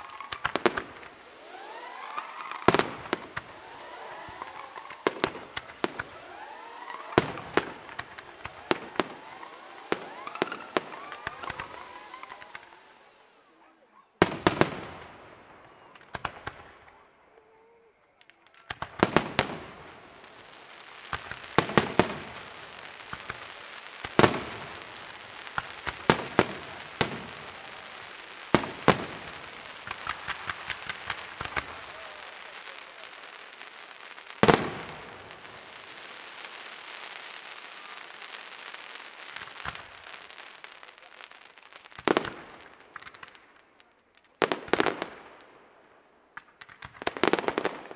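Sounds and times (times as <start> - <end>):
firework shells bursting: 0.0 - 13.0, 18.1 - 38.2
crackle and hiss of fireworks: 0.0 - 47.9.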